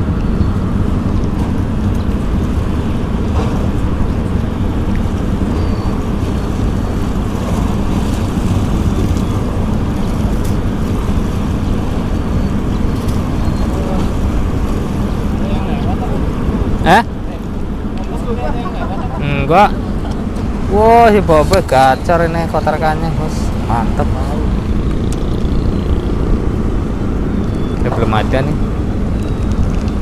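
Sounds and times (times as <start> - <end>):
wind buffeting microphone: 0.0 - 18.4
small waves washing: 0.7 - 25.4.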